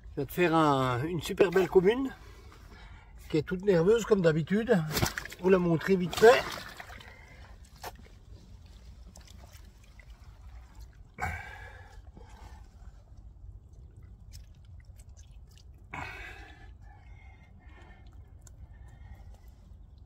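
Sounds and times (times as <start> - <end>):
fish splashing in water: 4.9 - 5.4, 13.9 - 16.5
water splashing and dripping: 4.9 - 19.9.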